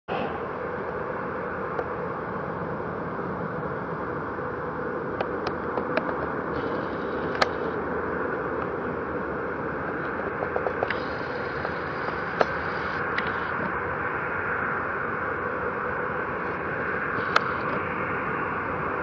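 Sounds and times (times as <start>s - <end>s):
distant jet engines humming: 0.1s - 19.0s
small ticks: 5.2s - 7.8s, 9.9s - 13.7s, 17.2s - 17.8s.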